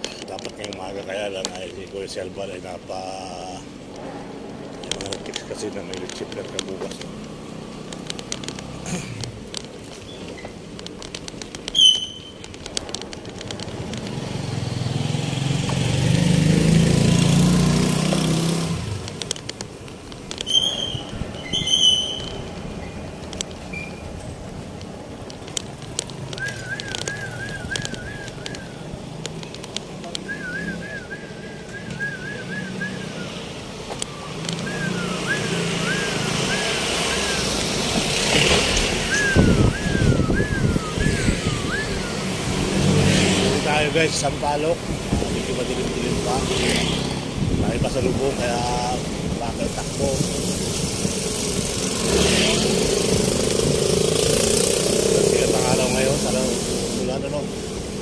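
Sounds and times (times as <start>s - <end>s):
quick high chirps: 11.7s - 12.4s, 20.5s - 22.5s
vehicle passing: 12.8s - 19.4s, 20.5s - 58.0s.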